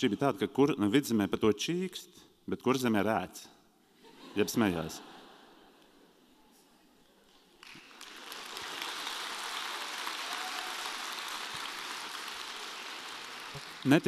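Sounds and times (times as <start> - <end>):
audience applause: 7.6 - 14.0.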